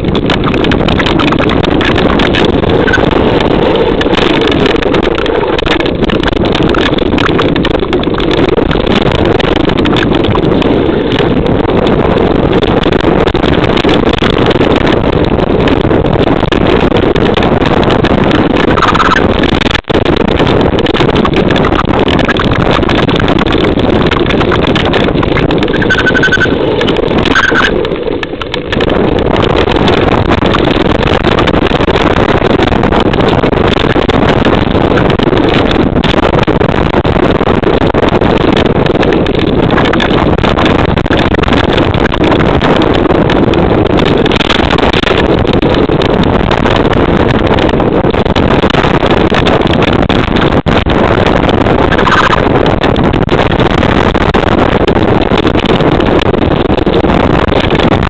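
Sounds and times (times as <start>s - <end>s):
mountain bike tyres rumbling: 0.0s - 58.0s
wind buffeting: 0.0s - 58.0s.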